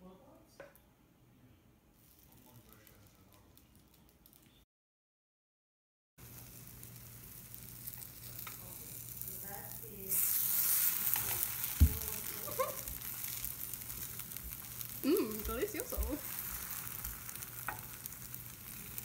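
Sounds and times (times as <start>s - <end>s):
pancakes sizzling in oil: 6.2s - 19.0s.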